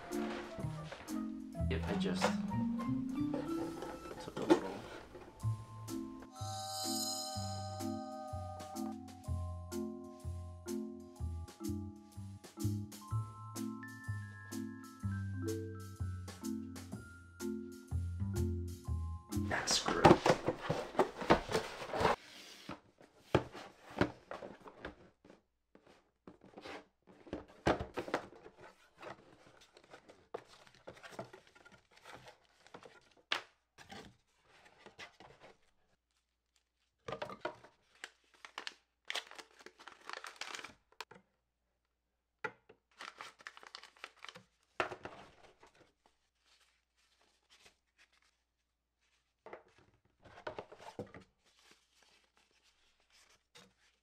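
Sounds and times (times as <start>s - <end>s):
paper wrapping crinkling: 19.6s - 22.2s, 37.6s - 41.0s, 42.9s - 54.0s
cardboard tearing: 38.0s - 40.8s.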